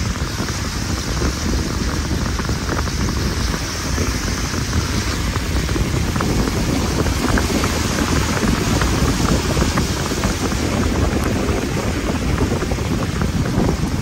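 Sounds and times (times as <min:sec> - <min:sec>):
car driving rushing noise: 0:00.0 - 0:14.0
wind buffeting microphone: 0:00.0 - 0:14.0.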